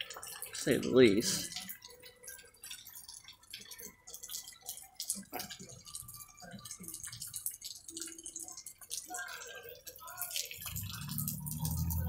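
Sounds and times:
rainwater dripping: 0.0 - 12.0
faint rain hiss: 7.8 - 12.0.

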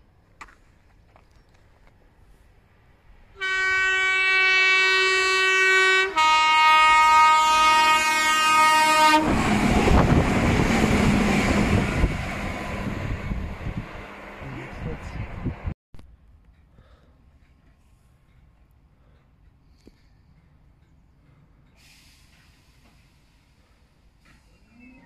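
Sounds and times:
train rumbling past: 2.2 - 25.0
train two-tone horn: 3.4 - 9.4.

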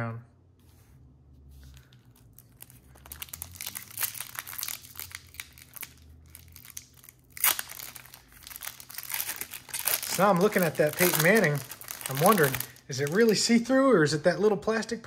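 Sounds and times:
card pack crinkling: 1.6 - 13.6.

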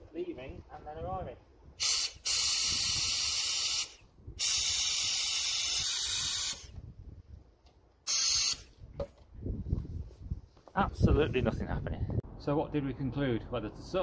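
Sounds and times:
air tool hissing: 1.8 - 6.8, 8.1 - 8.7.

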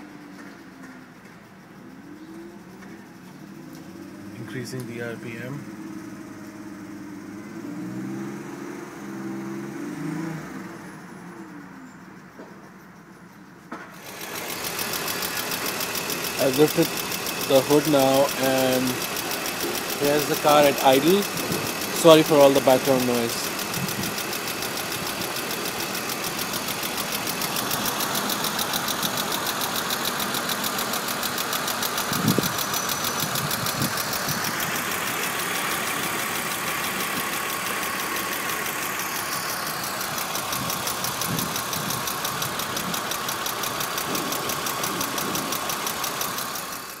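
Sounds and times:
car engine idling: 0.0 - 9.0, 10.6 - 47.0
fast engine ticking: 14.0 - 47.0.

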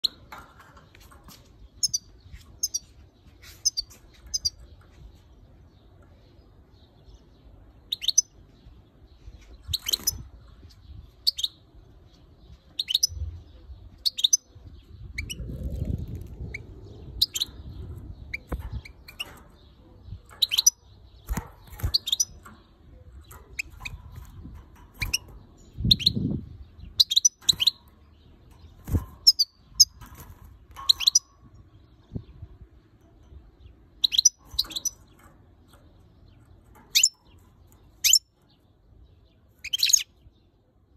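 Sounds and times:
goldfinch high chirps: 7.9 - 8.4, 12.7 - 13.4, 16.4 - 22.4, 26.8 - 32.3, 34.0 - 35.2, 39.5 - 40.2.

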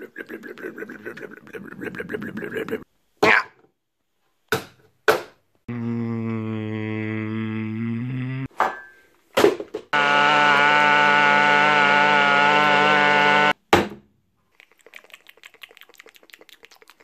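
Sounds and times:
blender motor running loudly: 10.0 - 13.6.

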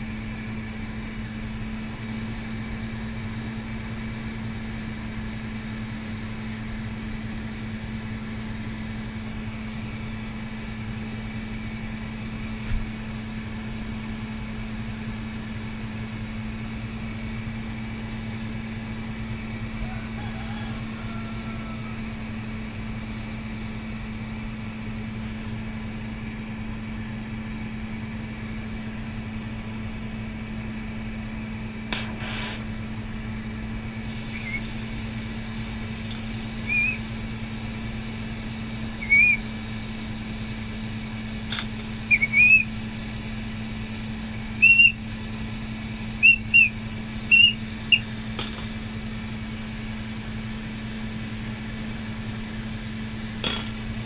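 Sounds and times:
torch hissing and humming: 31.9 - 32.9, 33.8 - 50.3
high squeaky chirps: 34.4 - 34.7, 36.6 - 37.0, 39.0 - 39.4, 42.0 - 42.7, 44.6 - 45.0, 46.2 - 48.1.

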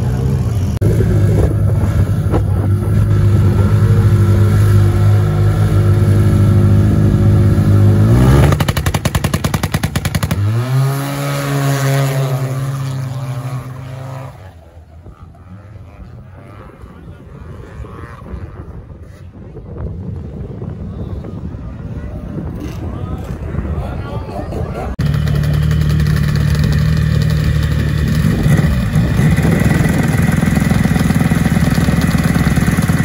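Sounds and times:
snowmobile engine high revs: 0.0 - 19.4, 24.4 - 33.0
engine rising in pitch: 24.2 - 33.0.

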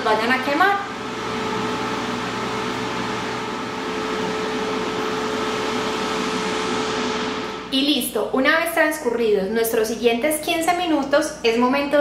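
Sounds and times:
air fryer fan whooshing: 0.0 - 8.0.

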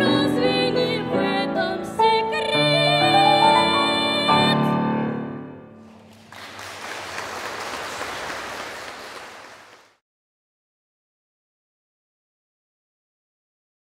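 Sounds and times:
audience applauding: 5.8 - 10.0.

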